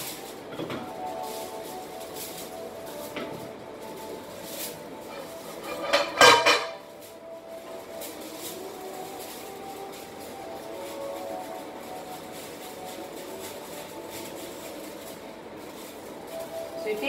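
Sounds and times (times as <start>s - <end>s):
pot and lid clattering: 5.1s - 6.9s
metal cookware knocking: 5.6s - 6.8s.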